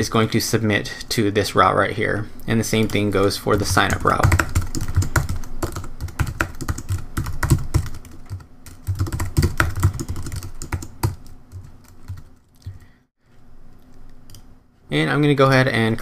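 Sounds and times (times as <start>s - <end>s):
computer keyboard typing: 2.8s - 12.8s.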